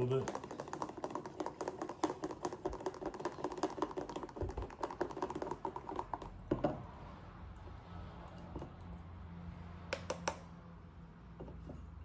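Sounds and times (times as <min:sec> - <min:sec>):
plastic paddle clicking and tapping: 0:00.0 - 0:06.4, 0:09.9 - 0:10.4.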